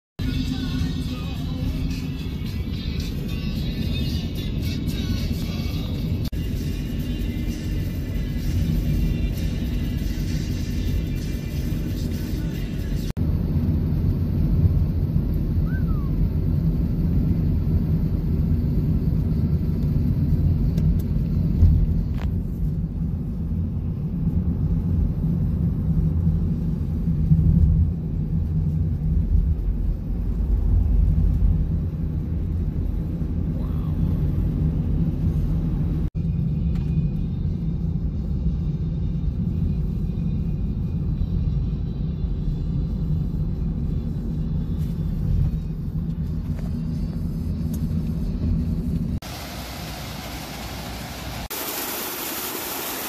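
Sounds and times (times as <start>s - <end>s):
road and engine rumble in car: 0.2s - 53.0s.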